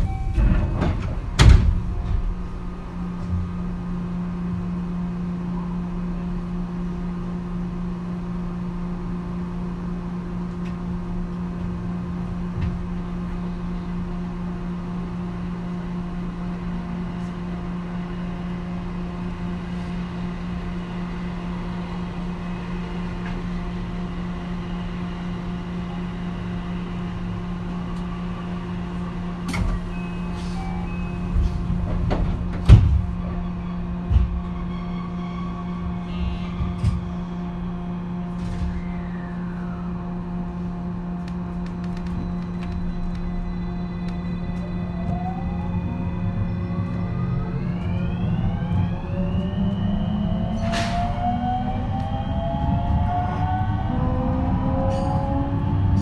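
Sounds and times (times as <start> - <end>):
train electrical hum: 0.0 - 56.0.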